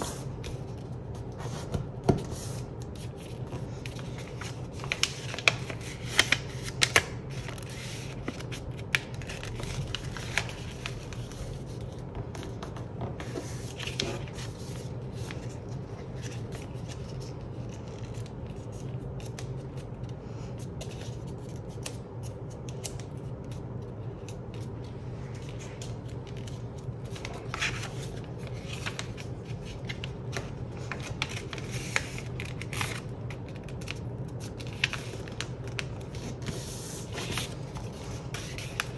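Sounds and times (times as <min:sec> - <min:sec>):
paper being folded and creased: 0:00.0 - 0:20.1, 0:20.8 - 0:38.9.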